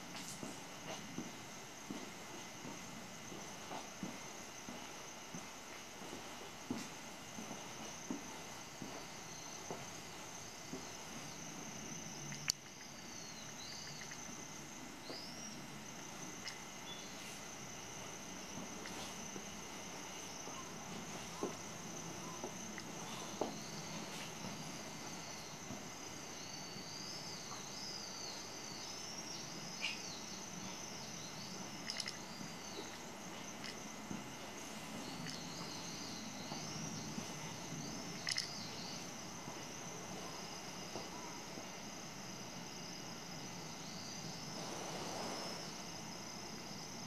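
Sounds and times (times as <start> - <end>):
steady high-pitched whine: 0.0 - 47.0
sharp clicks: 31.8 - 32.2.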